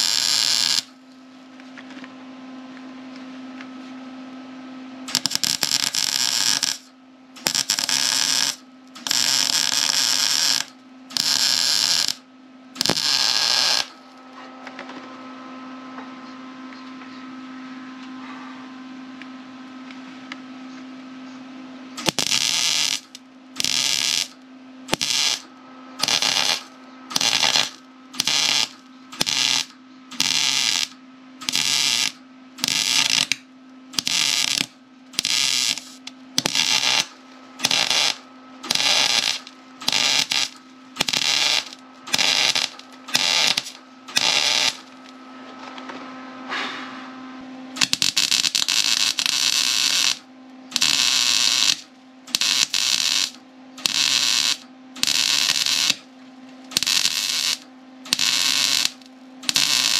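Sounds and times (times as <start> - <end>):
welder arc crackling: 0.0 - 1.0, 5.1 - 12.2, 12.8 - 14.0, 22.0 - 45.1, 47.8 - 56.1, 56.7 - 59.9.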